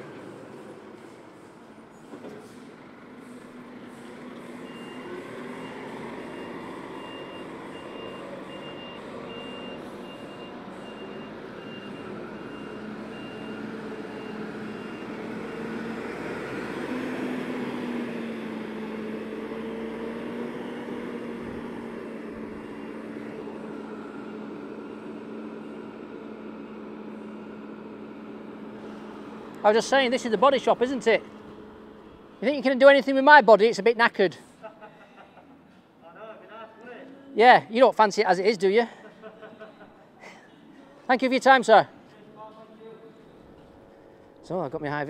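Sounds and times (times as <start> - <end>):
truck diesel engine running: 2.5 - 32.8
reversing alarm beeping: 4.6 - 15.9.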